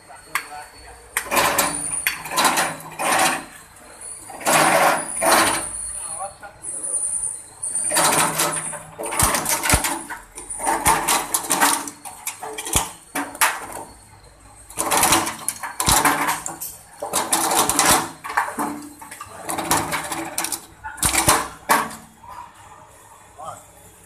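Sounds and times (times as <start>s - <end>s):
machine chipping coconut shell: 7.8s - 13.9s, 14.7s - 22.0s.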